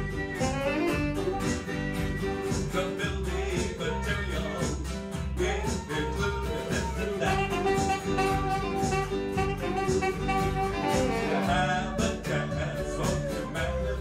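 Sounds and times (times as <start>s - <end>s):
saxophone holding long notes: 0.0s - 2.5s, 7.0s - 14.0s
tapped percussion beat: 0.0s - 13.8s
bass: 0.0s - 14.0s
strummed acoustic guitars: 0.0s - 14.0s.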